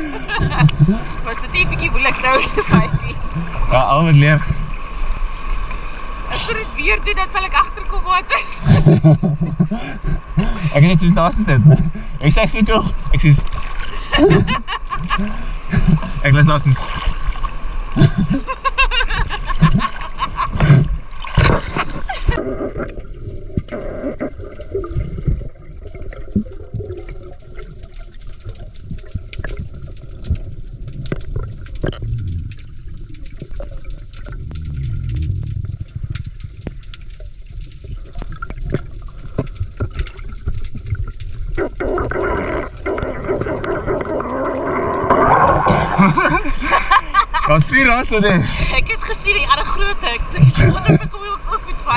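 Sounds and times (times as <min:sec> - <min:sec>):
muffled underwater rumble: 0:00.0 - 0:13.3, 0:17.4 - 0:46.8, 0:48.3 - 0:51.9
sea water splashing: 0:00.0 - 0:51.9
sharp clicks underwater: 0:00.4 - 0:01.5, 0:19.2 - 0:46.2.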